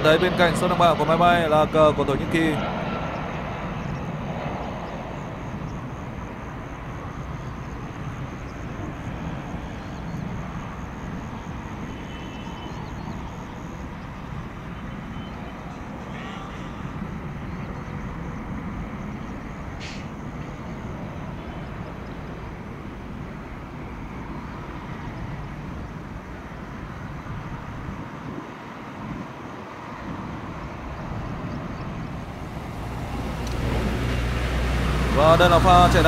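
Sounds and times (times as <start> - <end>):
jet engines rumbling: 0.0 - 29.0, 30.2 - 36.0
brief hiss: 19.8 - 20.2
motorbikes and car passing: 31.6 - 36.0.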